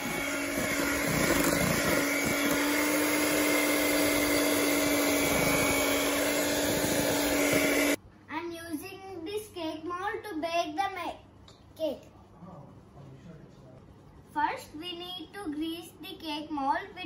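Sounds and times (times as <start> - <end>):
electric hand mixer running: 0.0 - 8.0.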